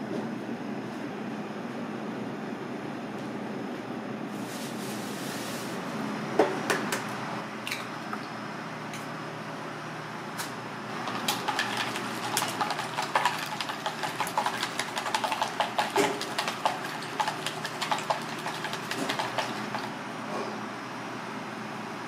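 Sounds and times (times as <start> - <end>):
chopsticks beating egg in bowl: 11.0 - 20.0.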